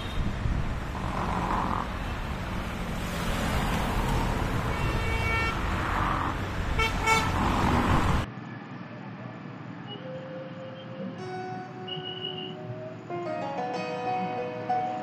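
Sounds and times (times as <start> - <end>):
vehicle horns tooting: 0.0 - 0.3, 4.6 - 5.6, 6.8 - 7.4, 9.9 - 12.7
city road traffic: 0.0 - 15.0.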